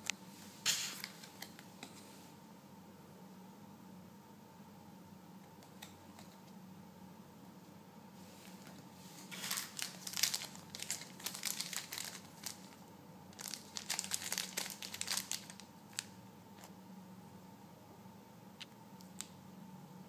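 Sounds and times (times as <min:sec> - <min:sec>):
plastic bag crinkling: 0:09.2 - 0:16.7.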